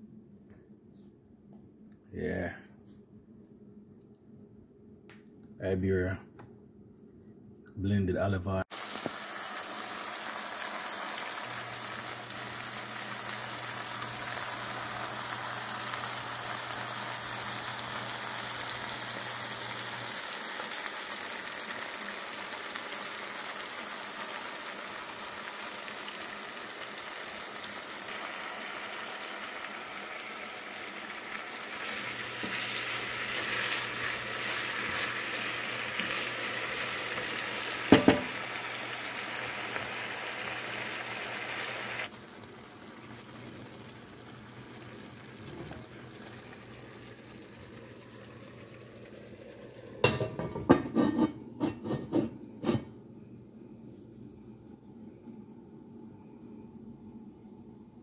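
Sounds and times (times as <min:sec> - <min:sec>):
vegetables sizzling in oil: 0:08.7 - 0:51.1.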